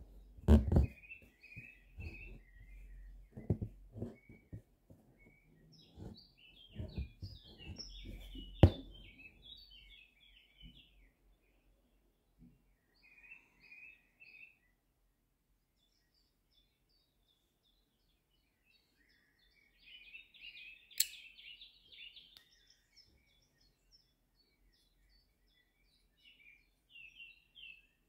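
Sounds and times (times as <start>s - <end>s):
small birds chirping: 0.1s - 14.8s, 15.8s - 28.0s
thread rasping through fabric: 0.4s - 1.0s, 3.3s - 4.6s, 5.9s - 8.9s
sharp click: 21.0s - 21.2s.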